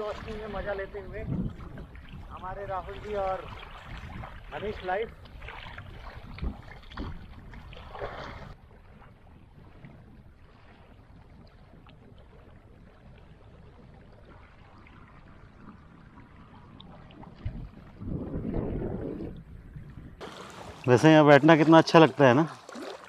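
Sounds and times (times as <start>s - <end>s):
small waves on stony shore: 0.0s - 18.1s, 20.2s - 23.0s
water lapping and splashing: 0.0s - 23.0s
open-air water hiss: 20.2s - 23.0s.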